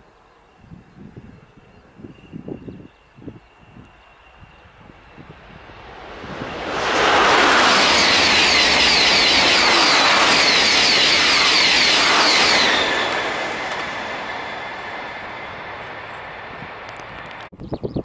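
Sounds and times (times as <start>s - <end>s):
high-speed train passing: 0.0s - 17.5s.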